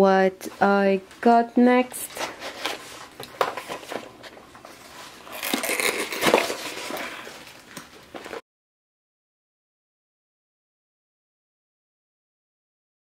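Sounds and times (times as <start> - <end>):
cardboard flap rasping open: 5.2 - 7.2.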